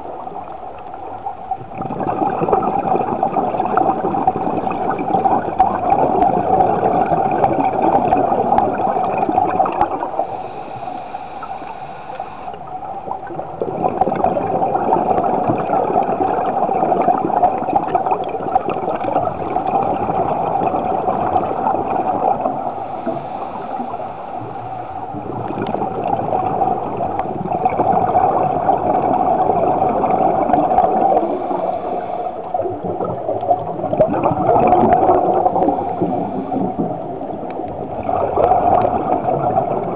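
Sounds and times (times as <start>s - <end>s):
underwater regulator breathing bubbles: 13.6s - 39.9s.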